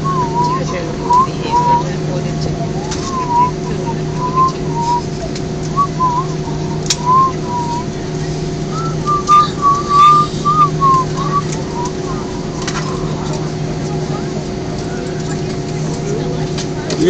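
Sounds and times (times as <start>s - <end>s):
person whistling a tune: 0.0s - 2.0s, 2.7s - 7.9s, 8.7s - 13.5s
airliner taxiing drone: 0.0s - 17.0s.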